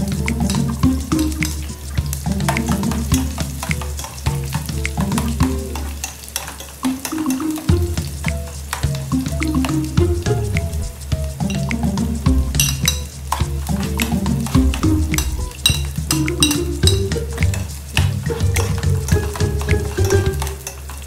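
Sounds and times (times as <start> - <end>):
music: 0.0 - 21.0
onions sizzling in a pot: 0.0 - 21.0
metal spatula scraping a pot: 2.5 - 7.3.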